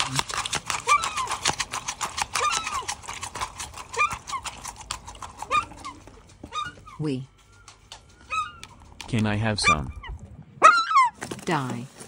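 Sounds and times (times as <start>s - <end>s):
seagull squeaks: 5.5s - 8.8s, 9.6s - 11.2s.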